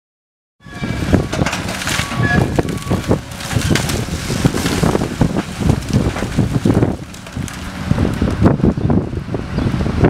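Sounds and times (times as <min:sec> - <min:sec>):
bucket crunching wood and rubble: 0:00.7 - 0:08.6
excavator diesel engine under load: 0:00.7 - 0:10.0.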